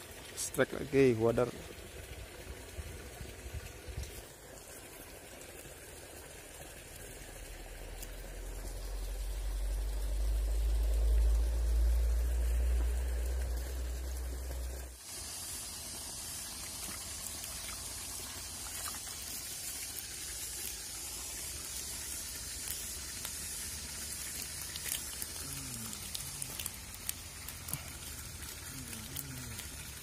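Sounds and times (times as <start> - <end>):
stream running water: 0.0 - 30.0.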